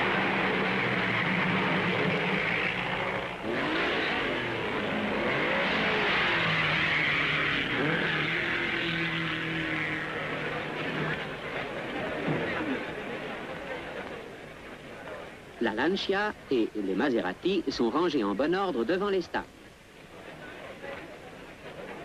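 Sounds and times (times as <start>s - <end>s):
racing car engines revving: 0.0s - 15.2s.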